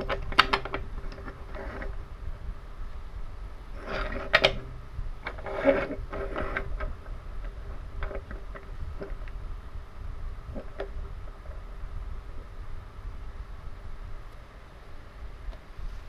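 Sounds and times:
wooden toy trains clacking: 0.0 - 2.0, 3.9 - 9.4.

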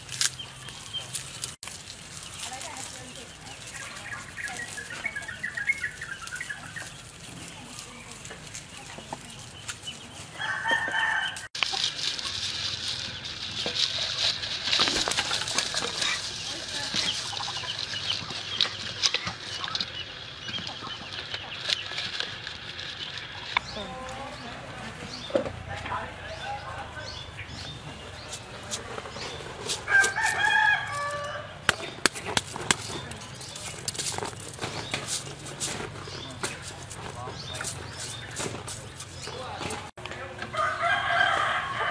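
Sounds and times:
rooster crowing: 10.3 - 11.5, 29.9 - 31.6, 40.4 - 41.9
small rustles and clicks: 32.0 - 40.1.

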